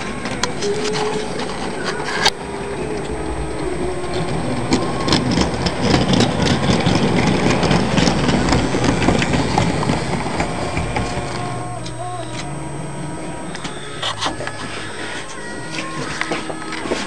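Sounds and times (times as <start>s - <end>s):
train wheels clattering over rails: 0.0s - 11.6s
electric motor whirring: 0.0s - 17.0s.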